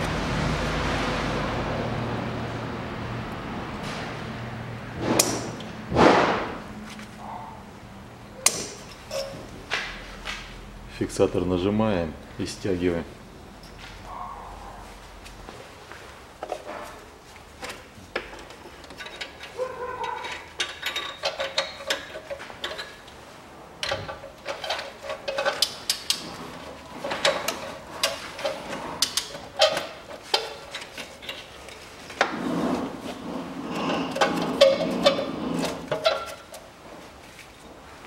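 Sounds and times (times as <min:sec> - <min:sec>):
ratchet metallic clicks and knocks: 0:18.2 - 0:23.1, 0:23.8 - 0:31.9.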